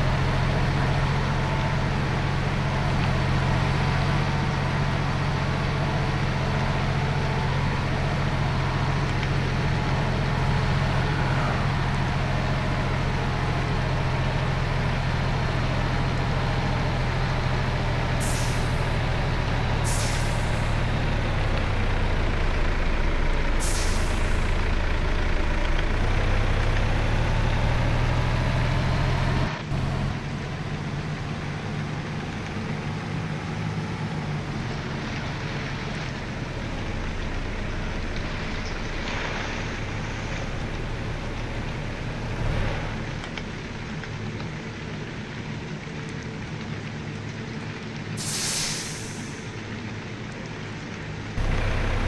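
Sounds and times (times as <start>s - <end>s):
rain: 0.0s - 52.0s
road noise: 0.0s - 52.0s
truck engine running under load: 0.0s - 52.0s
brief hissing: 19.9s - 20.6s, 23.6s - 24.4s, 48.2s - 49.4s.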